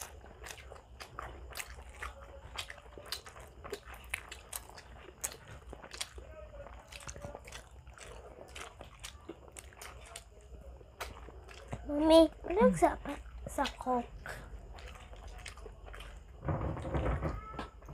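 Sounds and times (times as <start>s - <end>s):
people chewing food: 0.0s - 17.9s.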